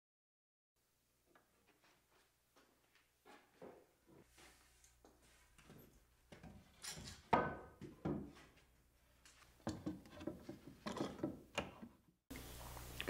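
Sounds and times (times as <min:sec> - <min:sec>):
wood knocking on wood: 0:07.3 - 0:08.4.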